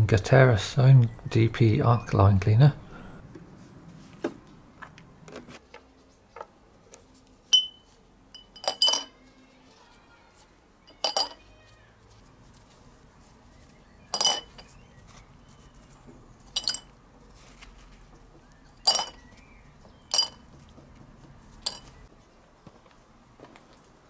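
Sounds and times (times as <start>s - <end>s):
metal nuts clinking into glass jar: 7.5s - 7.8s, 8.4s - 9.2s, 10.9s - 11.4s, 14.1s - 14.7s, 16.5s - 16.9s, 18.8s - 19.2s, 20.1s - 20.4s, 21.6s - 21.9s.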